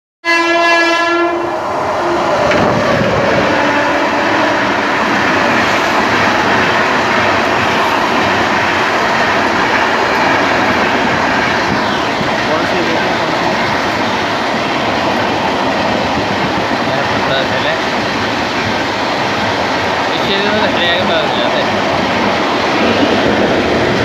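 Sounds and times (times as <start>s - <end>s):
train horn: 0.2s - 2.2s, 3.5s - 4.8s.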